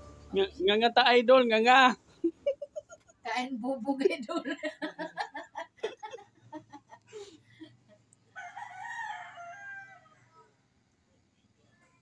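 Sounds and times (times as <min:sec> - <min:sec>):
rooster crowing: 0:08.3 - 0:10.5.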